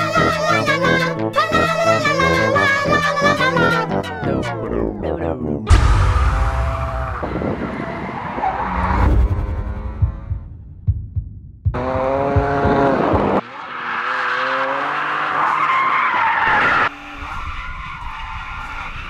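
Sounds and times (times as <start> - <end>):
car engines revving: 5.7 - 10.5, 11.8 - 19.0.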